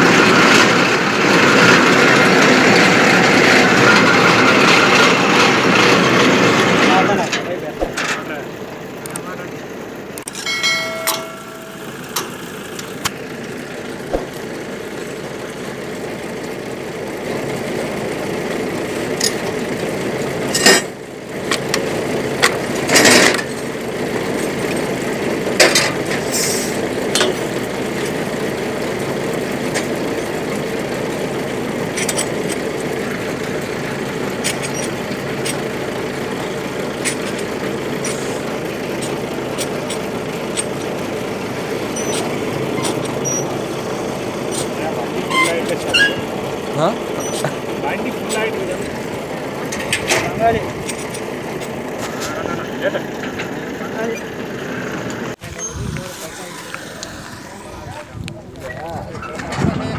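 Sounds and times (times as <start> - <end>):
rig engine running: 0.0 - 59.9
sharp metal clinks: 10.3 - 12.1.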